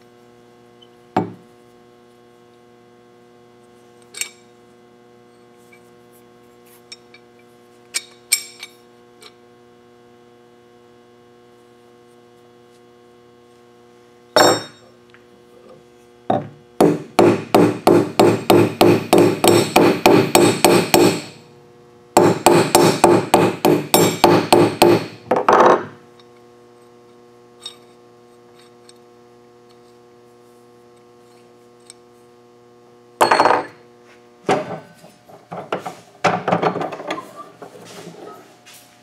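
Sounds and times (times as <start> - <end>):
hammer striking steel punch: 14.4 - 14.8, 16.8 - 21.4, 22.2 - 25.2.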